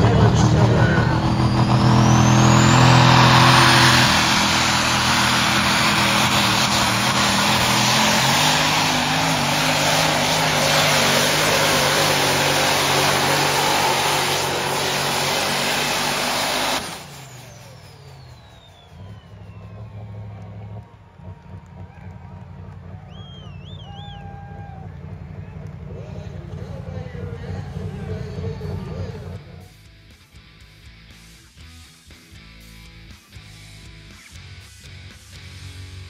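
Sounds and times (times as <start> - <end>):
diesel truck engine at full throttle: 0.0 - 29.9
turbo whistle: 16.5 - 20.6, 23.0 - 24.8.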